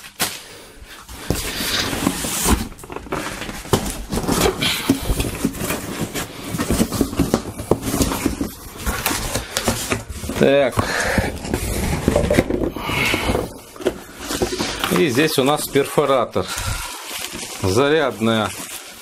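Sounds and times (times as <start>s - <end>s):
cardboard scraping and rustling: 1.1s - 16.3s.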